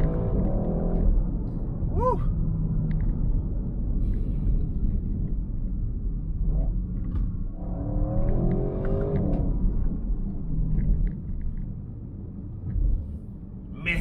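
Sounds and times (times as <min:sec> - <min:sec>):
car engine accelerating: 0:07.1 - 0:11.0.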